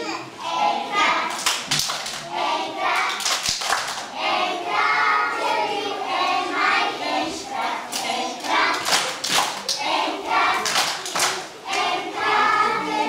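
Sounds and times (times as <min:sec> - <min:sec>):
children singing: 0:00.0 - 0:13.0
hands clapping: 0:01.3 - 0:02.3, 0:02.9 - 0:04.1, 0:07.9 - 0:11.9.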